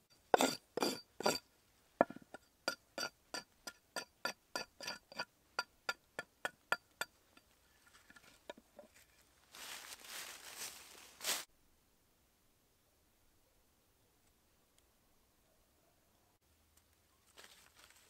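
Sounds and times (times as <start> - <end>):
rustle: 7.4 - 11.7, 16.7 - 18.0.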